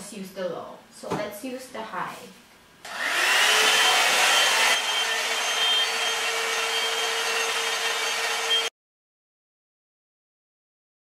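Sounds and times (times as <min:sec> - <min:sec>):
hot-air brush blowing: 0:02.8 - 0:08.7.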